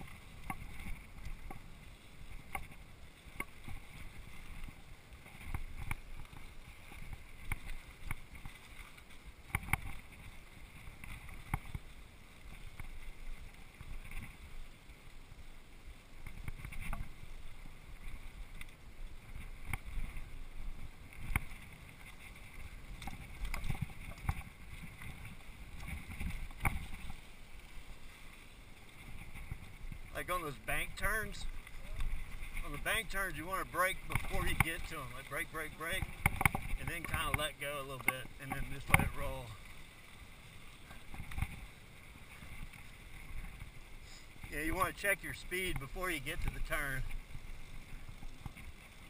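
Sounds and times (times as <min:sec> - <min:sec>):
bike tyres rumbling on dirt: 0:00.0 - 0:49.0
bike knocking and rattling: 0:32.0 - 0:39.5.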